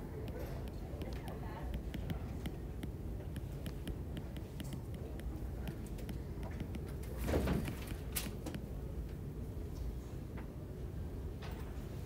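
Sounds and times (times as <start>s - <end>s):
stylus tapping on tablet screen: 0.0s - 7.0s, 7.6s - 8.7s
low room noise: 0.0s - 12.0s.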